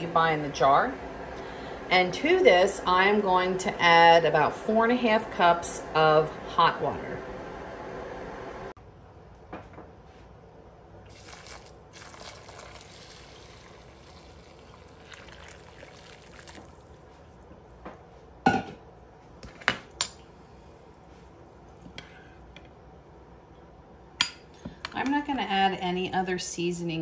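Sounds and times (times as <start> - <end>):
hot water pouring into dish: 11.1 - 17.1.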